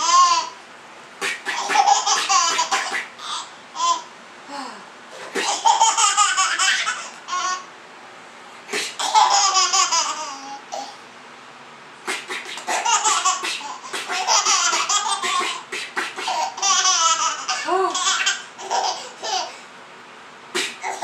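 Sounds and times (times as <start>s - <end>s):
baby laughing: 0.0s - 0.6s, 1.2s - 4.1s, 5.3s - 7.7s, 8.7s - 10.9s, 12.2s - 19.6s, 20.6s - 21.0s.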